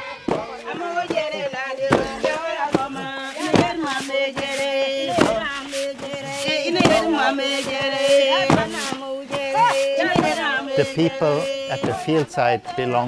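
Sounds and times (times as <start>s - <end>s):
group singing a chant: 0.0s - 13.0s
wooden pestles thudding on rock: 0.3s - 4.5s, 5.1s - 10.5s.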